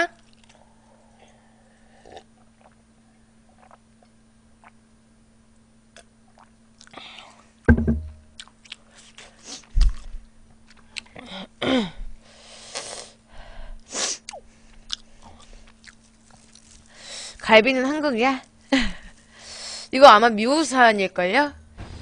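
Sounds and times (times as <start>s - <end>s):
person drinking: 0.2s - 2.8s, 3.4s - 4.8s
heavy thump: 7.7s - 8.2s.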